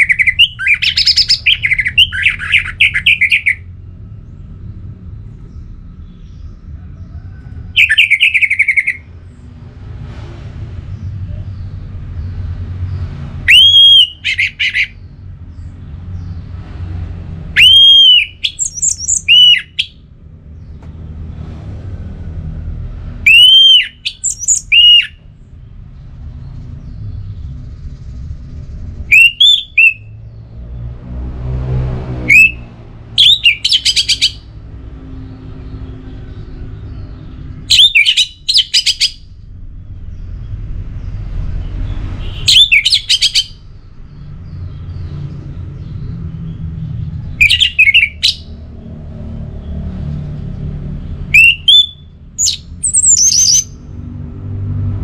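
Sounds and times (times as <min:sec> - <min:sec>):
thrush singing whistled phrases: 0:00.0 - 0:03.7, 0:07.8 - 0:09.1, 0:13.5 - 0:15.0, 0:17.5 - 0:20.0, 0:23.2 - 0:25.2, 0:29.0 - 0:30.2, 0:32.3 - 0:34.5, 0:37.7 - 0:39.2, 0:42.2 - 0:43.6, 0:47.4 - 0:48.5, 0:51.3 - 0:53.8.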